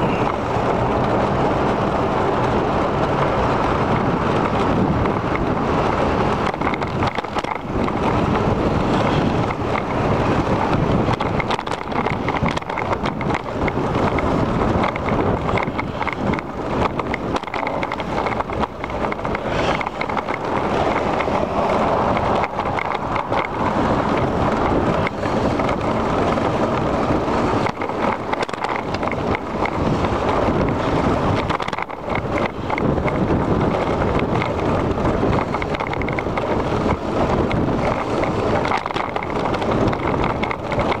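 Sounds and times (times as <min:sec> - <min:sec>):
bicycle knocks and rattles: 0:00.0 - 0:41.0
tyres rumbling on pavement: 0:00.0 - 0:41.0
wind buffeting microphone: 0:00.0 - 0:41.0.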